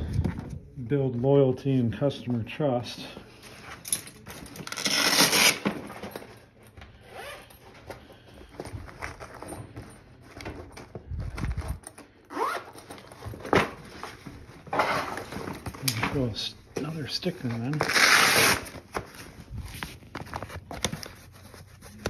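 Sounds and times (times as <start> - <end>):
tools rustling in bag: 3.2 - 22.0
bag zipper being pulled: 4.7 - 5.6.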